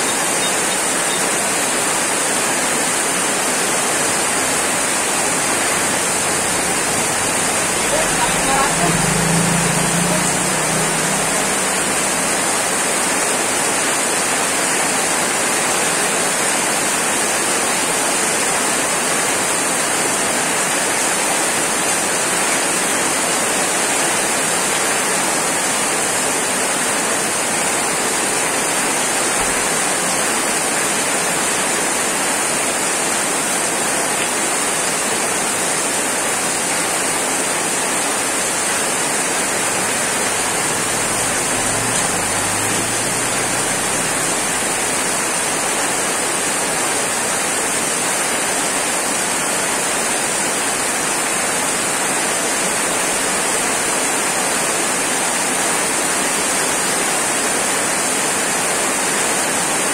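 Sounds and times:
heavy rain on pavement: 0.0 - 59.9
motorbike passing: 3.4 - 15.0, 37.2 - 47.1.

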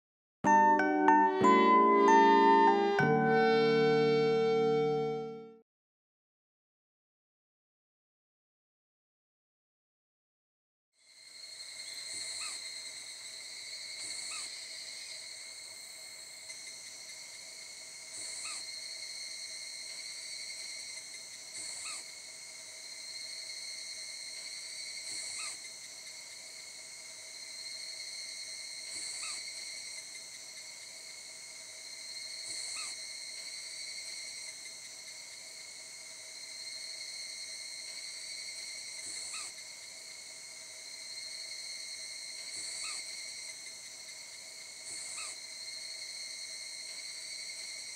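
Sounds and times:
high insect drone: 11.0 - 47.9.

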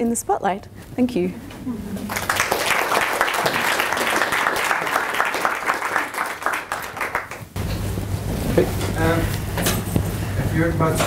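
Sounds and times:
audience applauding: 2.0 - 7.6.

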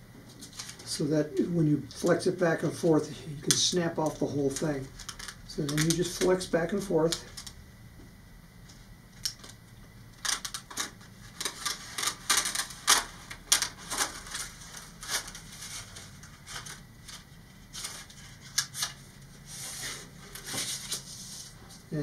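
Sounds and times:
plastic sheet clicking: 10.2 - 15.3.

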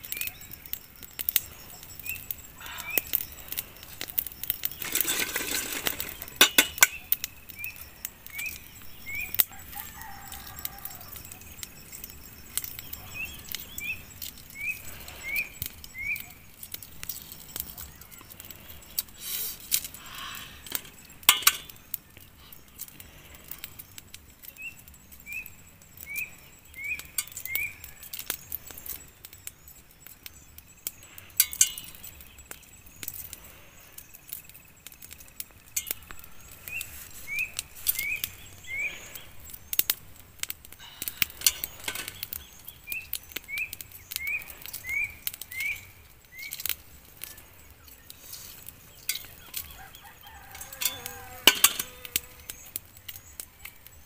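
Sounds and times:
eggshells cracking and crackling: 0.0 - 54.0.

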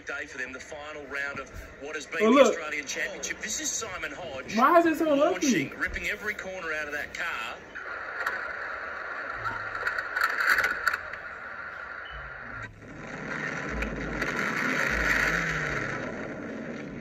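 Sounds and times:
low rumble: 12.2 - 17.0
car driving rushing noise: 12.7 - 17.0.

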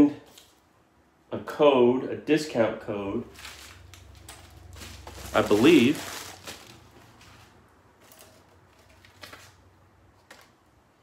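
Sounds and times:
packaging rustling: 3.3 - 9.6.

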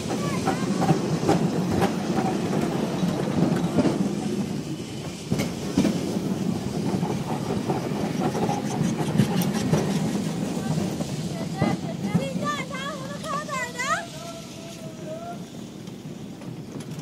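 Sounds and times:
tram clacks and knocks: 0.0 - 17.0
tram wheels rumbling on rails: 0.0 - 17.0.

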